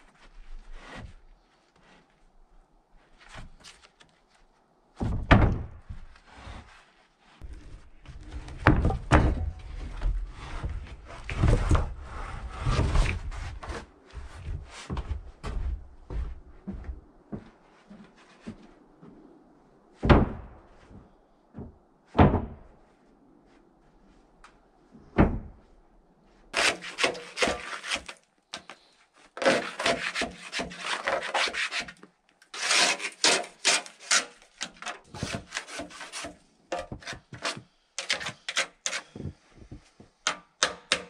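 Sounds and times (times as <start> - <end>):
wooden boards knocking and clattering: 8.5 - 10.2.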